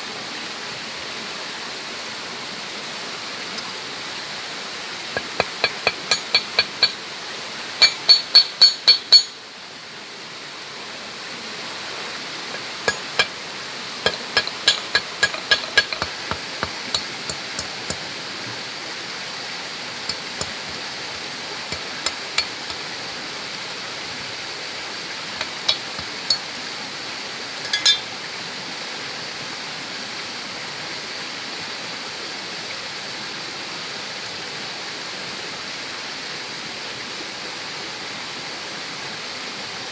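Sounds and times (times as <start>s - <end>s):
knife blade clinking on metal: 5.2s - 7.0s, 7.8s - 9.4s, 12.6s - 13.4s, 14.1s - 18.0s, 20.1s - 22.9s, 25.4s - 26.5s, 27.6s - 28.1s.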